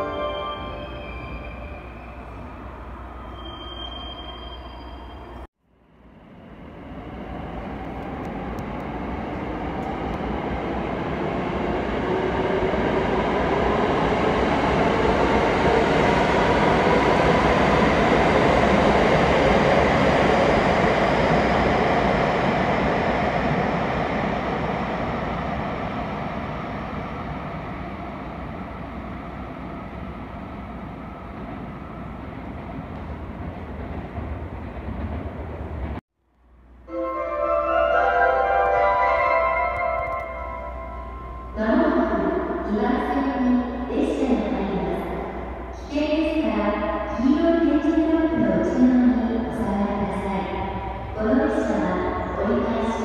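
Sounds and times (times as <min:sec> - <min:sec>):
train rumble: 0:06.2 - 0:36.8.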